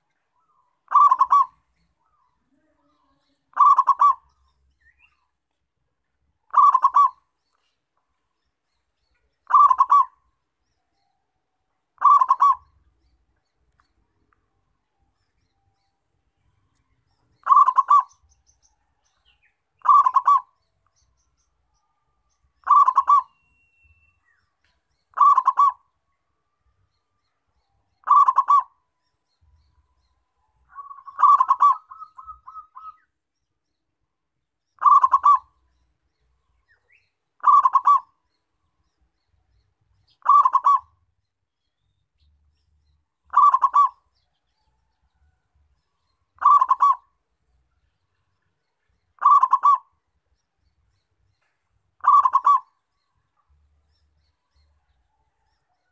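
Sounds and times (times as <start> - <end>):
dove cooing: 0.9 - 2.2, 3.5 - 4.4, 6.5 - 7.2, 9.4 - 10.2, 12.0 - 12.8, 17.4 - 18.3, 19.8 - 20.6, 22.6 - 23.4, 25.1 - 25.8, 28.0 - 28.8, 30.7 - 33.0, 34.8 - 35.5, 37.4 - 38.2, 40.2 - 41.0, 43.3 - 44.0, 46.4 - 47.1, 49.2 - 49.9, 52.0 - 52.7.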